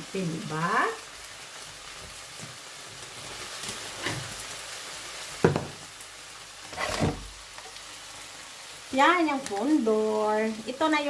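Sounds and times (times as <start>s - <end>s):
vegetables sizzling in frying pan: 0.0s - 11.0s
objects knocking on counter: 5.4s - 5.8s.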